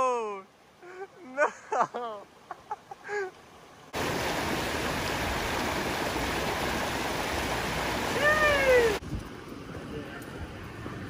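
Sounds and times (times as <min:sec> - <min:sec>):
stream rushing over rocks: 0:03.0 - 0:09.0.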